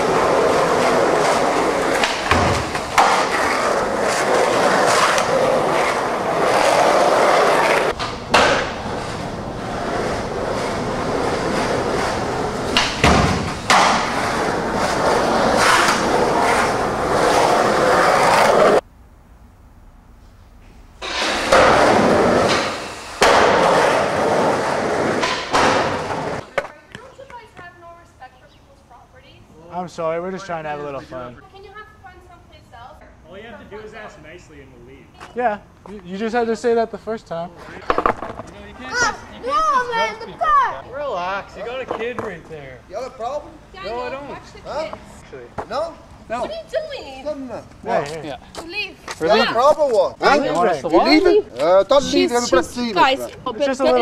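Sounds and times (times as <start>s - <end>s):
skateboard wheels rolling on floor: 0.0s - 18.8s, 21.0s - 27.8s, 37.6s - 40.1s
skateboard clacking on floor: 25.0s - 27.0s.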